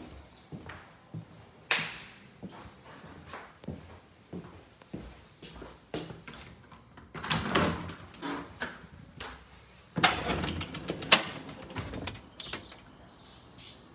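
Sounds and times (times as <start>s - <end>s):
screen door sliding: 9.9s - 13.3s
door opening with scraping: 10.0s - 13.0s
screen door click: 10.0s - 13.0s.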